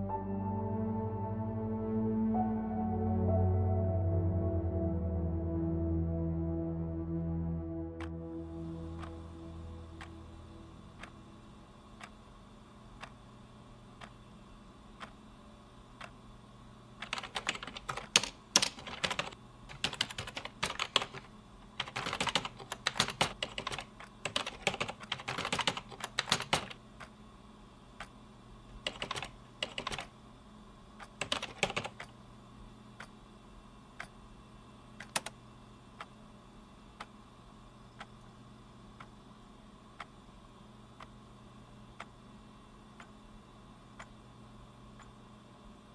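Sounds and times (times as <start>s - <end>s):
typing on a computer keyboard: 17.0s - 26.8s, 28.8s - 30.1s, 31.0s - 32.1s, 35.0s - 35.4s.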